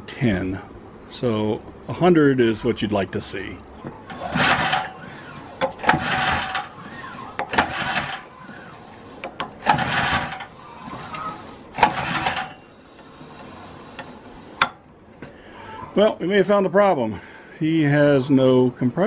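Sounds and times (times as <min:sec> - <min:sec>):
engine pull-starter cranking: 0:04.0 - 0:14.8.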